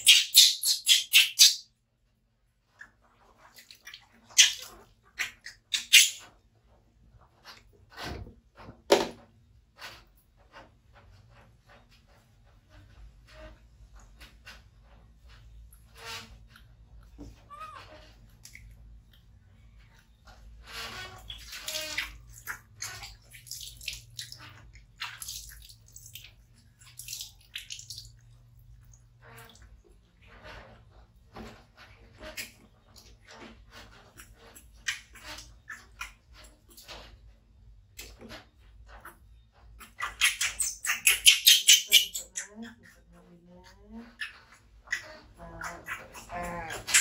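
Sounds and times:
water splashing: 0:20.8 - 0:29.4.

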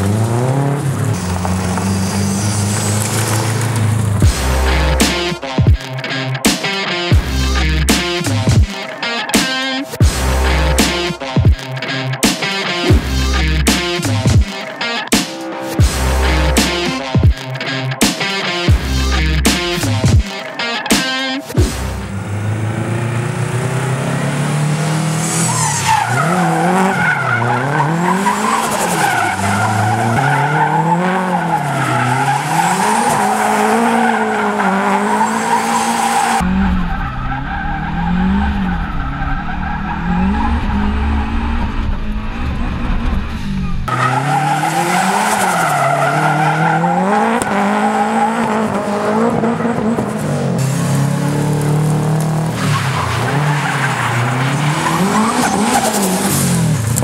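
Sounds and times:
tyres squealing and skidding: 0:00.0 - 0:05.6, 0:23.7 - 0:57.0
car engine revving: 0:00.0 - 0:20.3, 0:21.0 - 0:57.0.

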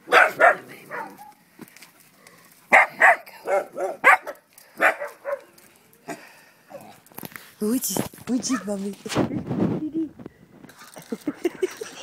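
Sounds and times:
dog barking: 0:00.0 - 0:01.4, 0:02.7 - 0:05.5.

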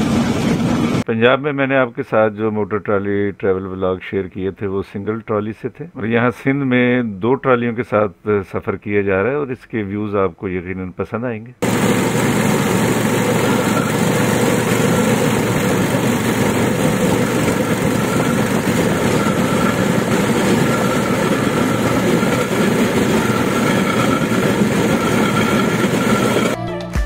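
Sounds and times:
rail trolley travelling on track: 0:00.0 - 0:01.0, 0:11.6 - 0:26.6.

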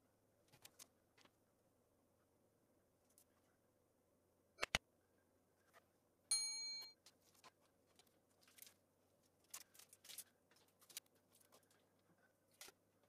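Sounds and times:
bell-like ding: 0:06.3 - 0:07.0.

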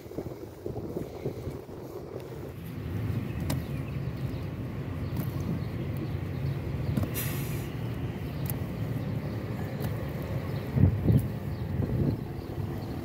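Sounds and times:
rustling hiss: 0:07.0 - 0:07.9.

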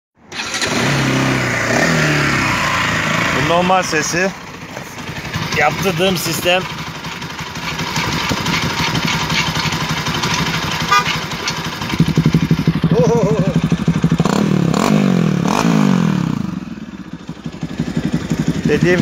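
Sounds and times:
motorcycle engine idling and revving: 0:00.2 - 0:19.0.

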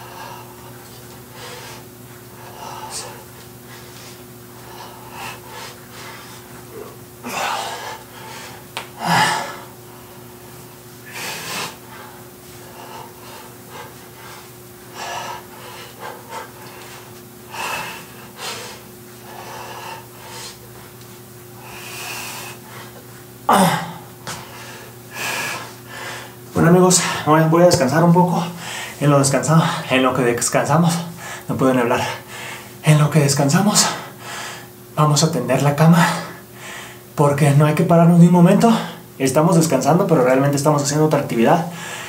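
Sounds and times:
man breathing hard: 0:00.0 - 0:21.0, 0:21.6 - 0:27.3, 0:28.4 - 0:29.0, 0:30.8 - 0:32.8, 0:33.8 - 0:34.8, 0:36.0 - 0:37.1, 0:41.6 - 0:42.0.

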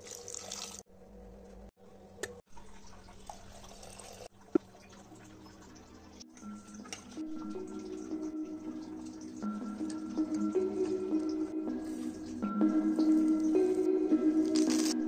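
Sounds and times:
water pouring into a pot: 0:00.0 - 0:00.8, 0:02.5 - 0:06.1
kitchen sounds: 0:00.0 - 0:15.0.

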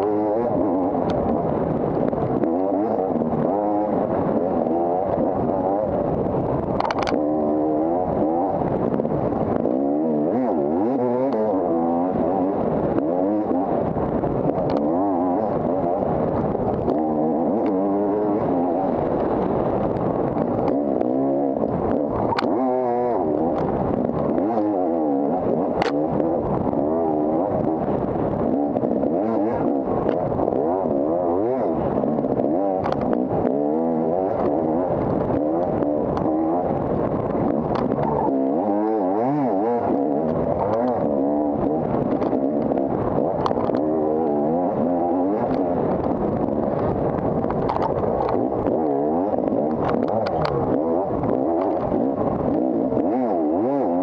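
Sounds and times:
dirt bike engine revving: 0:00.0 - 0:54.0
sharp clicks and knocks: 0:06.7 - 0:07.3, 0:25.7 - 0:26.6, 0:32.4 - 0:33.5, 0:37.4 - 0:43.9, 0:45.4 - 0:54.0.

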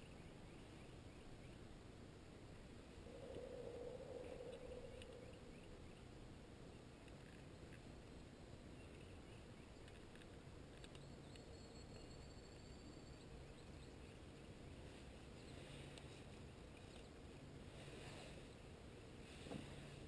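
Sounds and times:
faint background hiss: 0:00.0 - 0:20.0
faint ticks: 0:03.2 - 0:05.5.

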